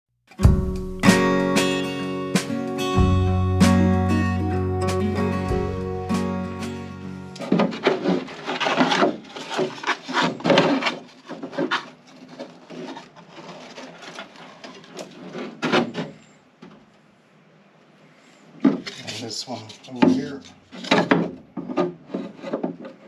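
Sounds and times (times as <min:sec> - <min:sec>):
panels scraping and knocking: 0:07.3 - 0:16.9, 0:18.6 - 0:23.0.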